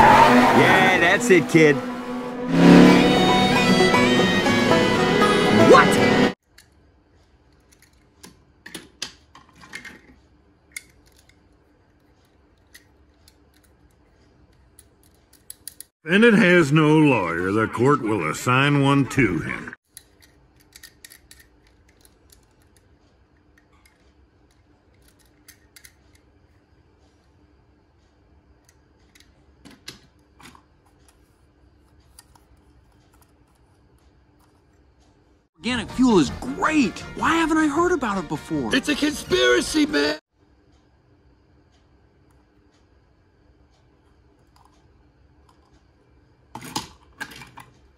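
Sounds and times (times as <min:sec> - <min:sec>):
toy cars clicking and tapping: 0:10.7 - 0:15.9, 0:19.9 - 0:26.3.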